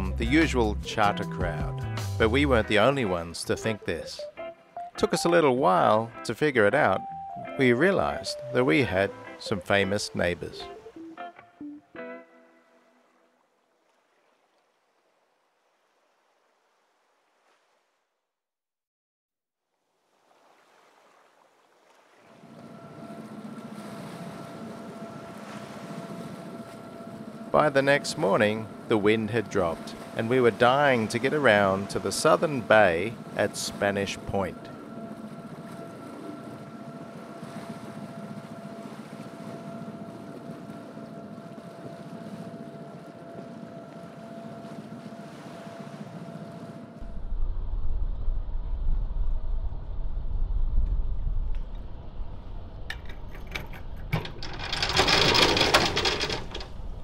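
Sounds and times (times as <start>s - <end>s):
water rushing past boat hull: 20.0s - 57.0s
thin steady whine: 22.3s - 57.0s
steady mechanical hum: 22.4s - 50.3s, 51.1s - 57.0s
wind rushing: 47.0s - 52.9s.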